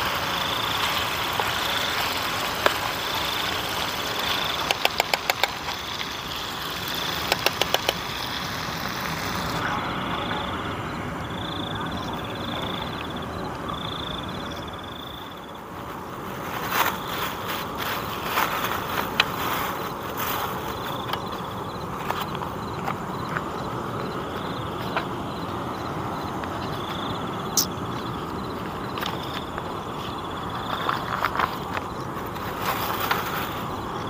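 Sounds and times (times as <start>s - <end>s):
chicken frying in a pan: 0.0s - 9.6s
insects chirping: 0.0s - 34.0s.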